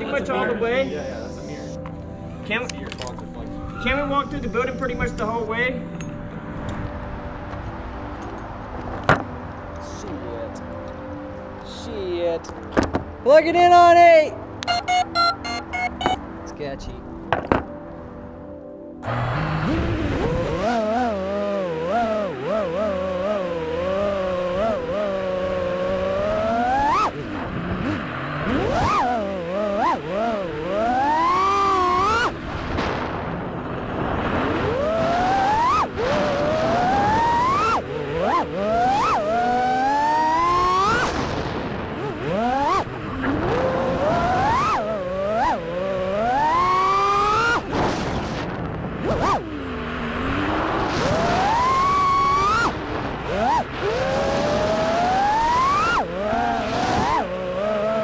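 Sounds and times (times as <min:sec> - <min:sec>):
drone motors whining: 0:14.6 - 0:16.2, 0:19.0 - 0:32.6, 0:34.2 - 0:58.0.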